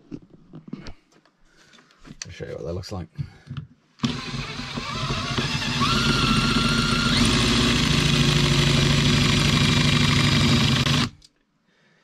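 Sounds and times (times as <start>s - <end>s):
power drill drilling into metal: 4.0s - 11.2s.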